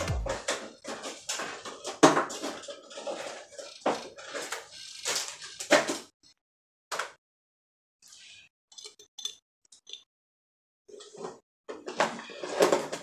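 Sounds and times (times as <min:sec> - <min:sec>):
small containers clinking and rustling: 0:00.4 - 0:06.1, 0:10.9 - 0:13.0.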